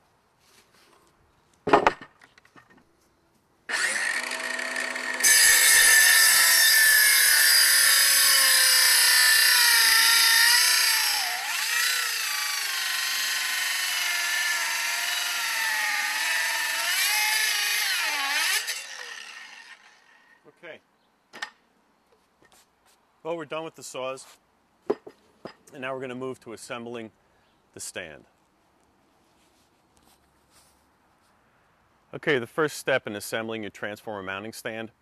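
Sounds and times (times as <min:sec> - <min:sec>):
circular saw cutting wood: 0:03.7 - 0:20.4.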